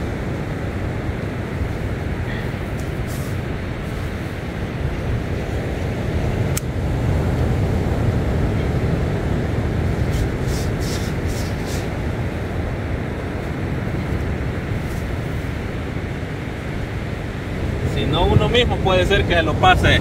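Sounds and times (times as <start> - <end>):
wind on microphone: 0.0 - 20.0
short hisses: 3.1 - 3.4, 10.1 - 11.9.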